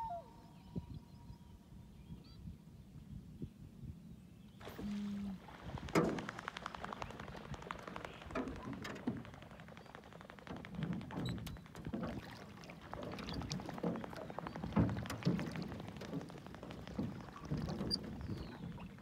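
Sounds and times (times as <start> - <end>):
bird wings splashing on water: 4.6 - 19.0.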